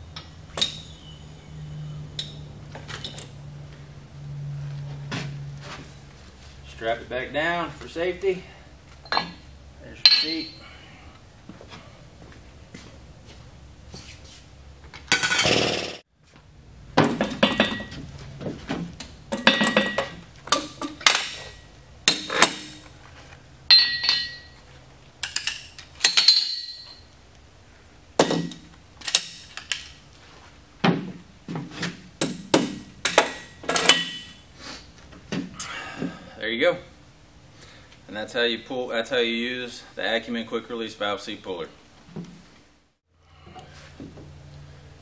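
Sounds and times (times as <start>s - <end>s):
steel parts clanking: 0.2s - 1.2s, 9.0s - 10.7s, 17.0s - 18.1s, 19.0s - 23.0s, 23.7s - 24.6s, 25.2s - 27.1s, 28.2s - 30.0s, 32.2s - 34.4s.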